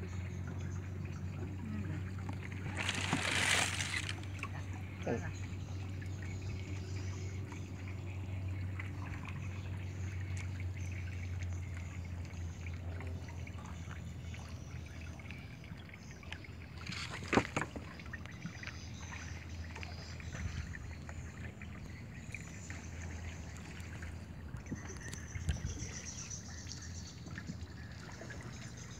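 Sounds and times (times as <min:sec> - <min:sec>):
water lapping around canoe: 0:00.0 - 0:28.9.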